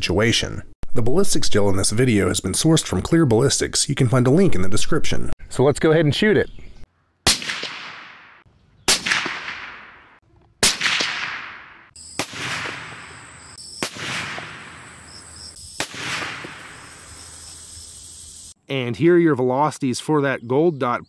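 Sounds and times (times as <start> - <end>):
faint rifle shot cracks: 7.3 - 13.2, 13.8 - 14.8, 15.8 - 16.8
suppressed rifle shots with echo: 7.3 - 15.0, 15.8 - 16.8.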